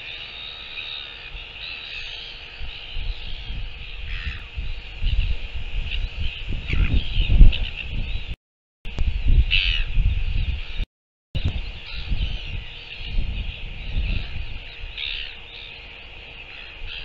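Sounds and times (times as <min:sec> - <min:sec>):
loud harsh bird call: 0:00.0 - 0:05.3, 0:11.4 - 0:17.0
wind gusting on microphone: 0:02.5 - 0:15.4
bird calls chattering: 0:11.4 - 0:17.0.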